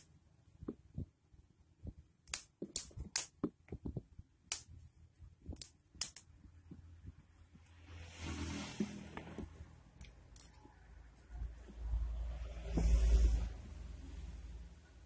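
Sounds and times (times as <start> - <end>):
plastic clicks and snaps: 5.5 - 6.3.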